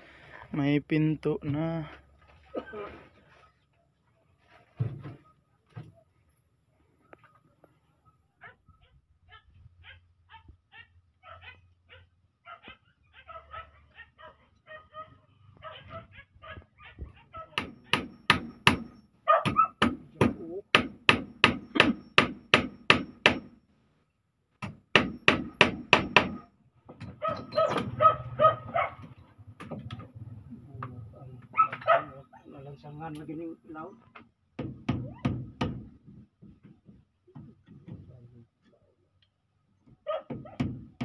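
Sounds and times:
hammer striking wooden door frame: 0:17.5 - 0:23.6, 0:24.6 - 0:28.0, 0:34.6 - 0:38.0, 0:40.3 - 0:41.0.

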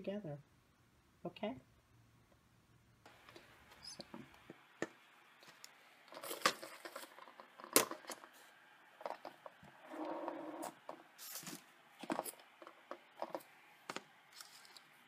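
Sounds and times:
plastic rubbing sound: 0:05.4 - 0:15.0.

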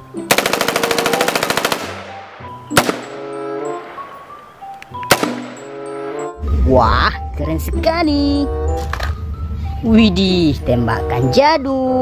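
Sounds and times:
background music: 0:00.0 - 0:12.0
rifle shots: 0:00.3 - 0:04.2, 0:05.1 - 0:05.7.

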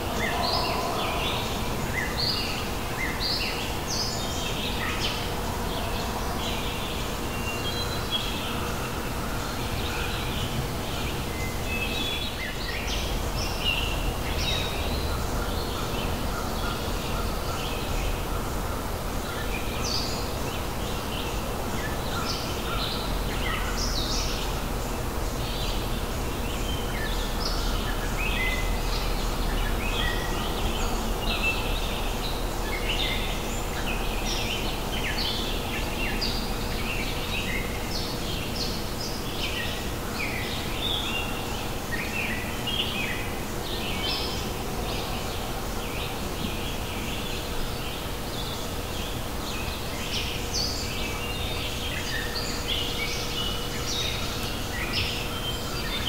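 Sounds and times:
birds chirping and calling: 0:00.0 - 0:08.6
low background noise: 0:00.0 - 0:56.0.

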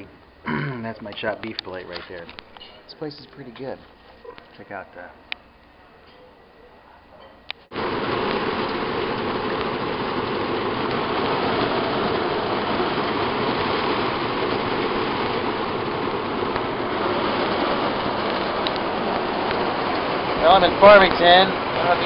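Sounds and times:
heavy rain downpour: 0:07.7 - 0:22.0.

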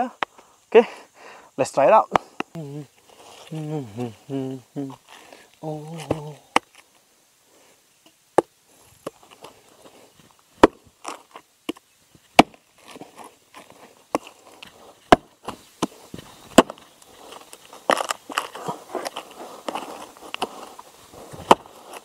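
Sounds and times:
axe chopping wood: 0:10.6 - 0:13.0, 0:14.1 - 0:16.9, 0:21.4 - 0:21.8.

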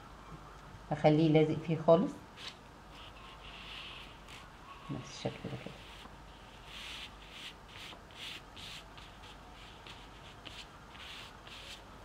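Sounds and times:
fingertips rubbing napkin on paper: 0:02.4 - 0:11.9.

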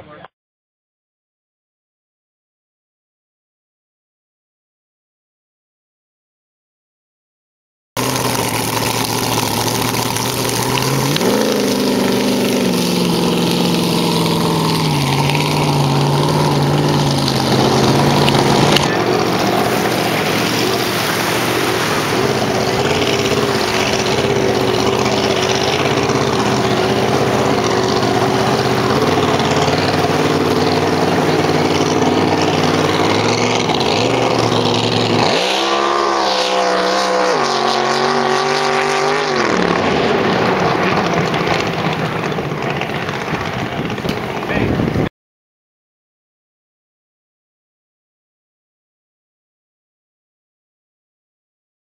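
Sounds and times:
boat engine roaring: 0:08.0 - 0:45.1.

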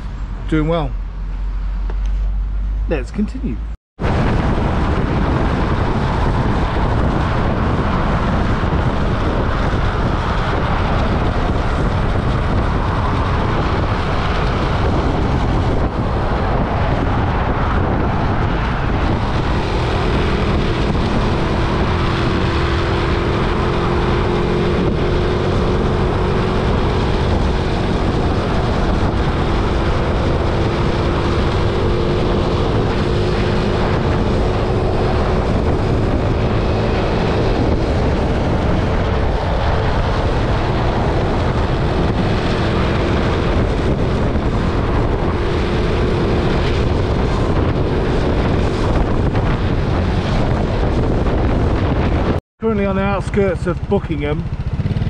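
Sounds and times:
road noise: 0:00.0 - 0:55.0
wind rush: 0:00.0 - 0:55.0
motorbike engine running: 0:53.7 - 0:55.0.

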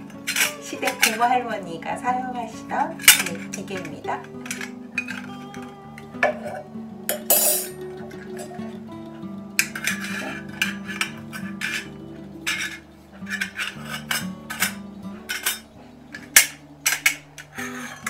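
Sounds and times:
soft guitar music: 0:00.0 - 0:18.0
metallic clicks and clinks: 0:09.6 - 0:18.0.

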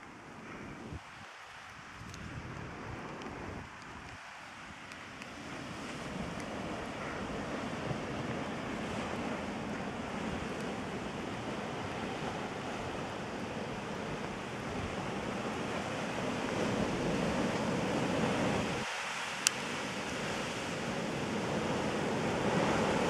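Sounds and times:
wind on microphone: 0:00.3 - 0:23.0
surf washing against rocks: 0:01.0 - 0:23.0.

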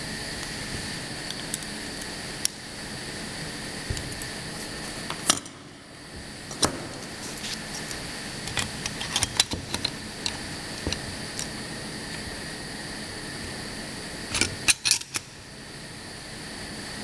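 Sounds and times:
machine mechanical hum: 0:00.0 - 0:17.0.

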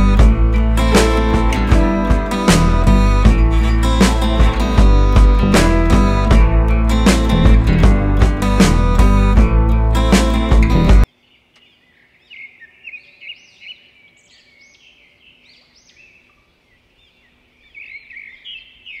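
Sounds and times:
music: 0:00.0 - 0:11.1
birds chirping: 0:09.9 - 0:19.0.

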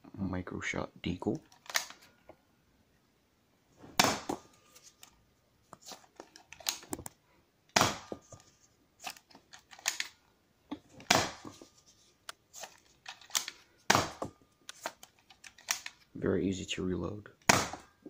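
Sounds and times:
clicks and rattles of toy blaster: 0:09.1 - 0:10.2, 0:14.7 - 0:16.0.

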